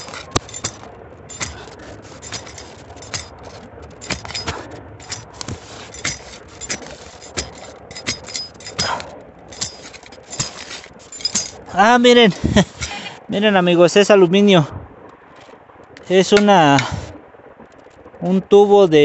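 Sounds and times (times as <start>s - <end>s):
shovel digging into soil: 0.0s - 11.7s, 12.5s - 13.1s, 16.4s - 17.1s.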